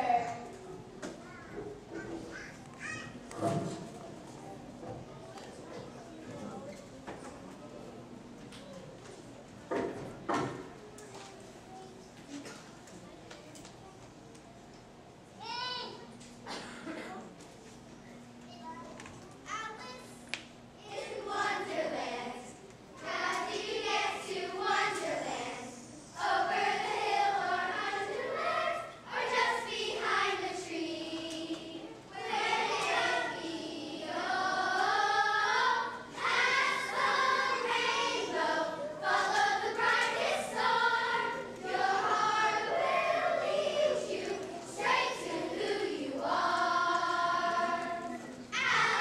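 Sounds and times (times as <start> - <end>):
children singing together: 20.9 - 49.0.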